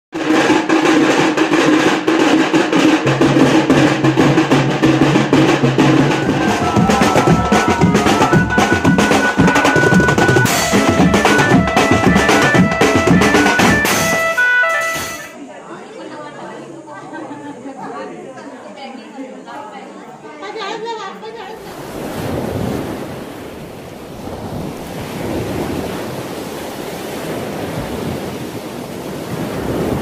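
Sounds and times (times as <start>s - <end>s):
drums playing fast roll: 0.2s - 15.3s
steady held tones: 5.1s - 15.4s.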